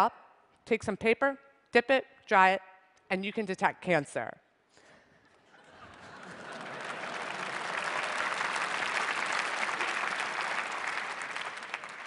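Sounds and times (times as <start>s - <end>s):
audience applauding: 5.7s - 12.0s.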